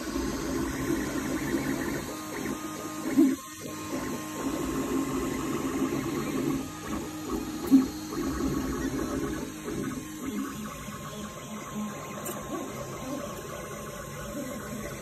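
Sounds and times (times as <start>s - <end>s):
cooling fan hum: 0.0s - 15.0s.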